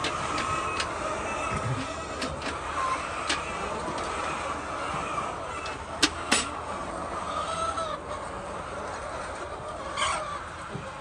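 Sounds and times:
hens clucking and chattering: 0:00.0 - 0:11.0
loud hen call: 0:00.0 - 0:11.0.

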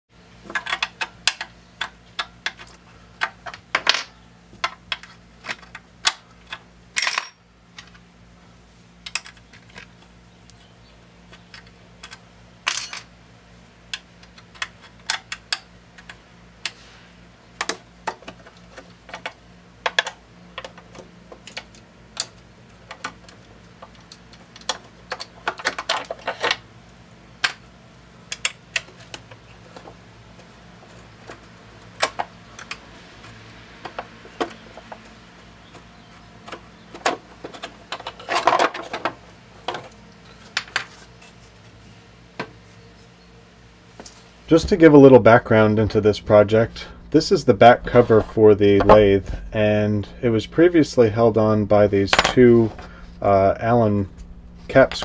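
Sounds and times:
faint steady low hum: 0:41.2 - 0:55.0.

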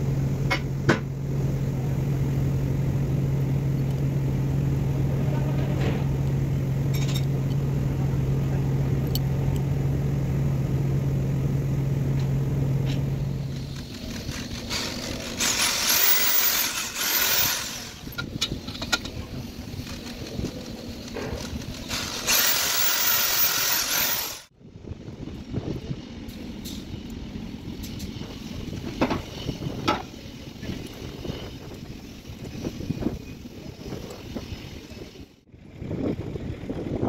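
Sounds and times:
electric drill boring through rubber: 0:13.5 - 0:18.2, 0:19.8 - 0:24.5.

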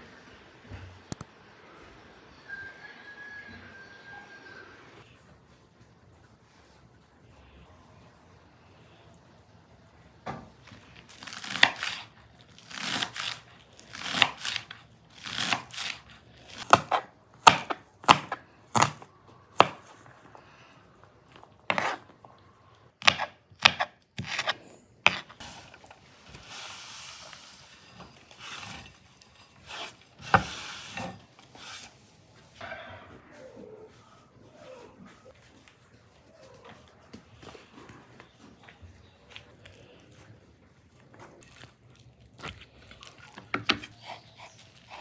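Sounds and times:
knife slicing onions: 0:11.1 - 0:20.0, 0:21.7 - 0:22.1, 0:23.0 - 0:25.8.

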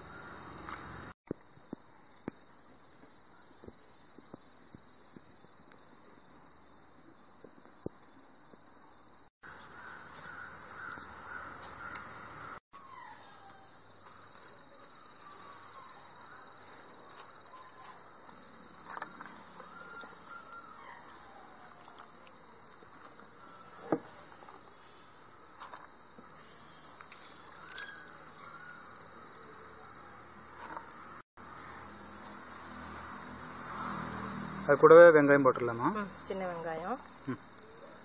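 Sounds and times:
birds calling: 0:00.0 - 0:01.1, 0:09.4 - 0:22.6, 0:26.2 - 0:32.0.

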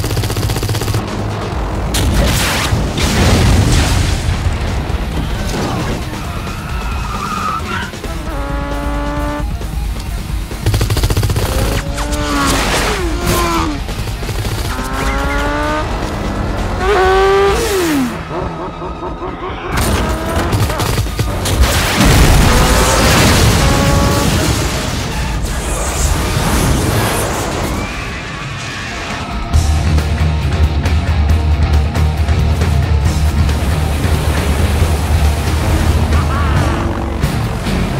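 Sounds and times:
car engine and tyres: 0:00.0 - 0:37.9
film music score: 0:00.0 - 0:37.9
explosions: 0:01.9 - 0:06.1, 0:19.8 - 0:28.2.

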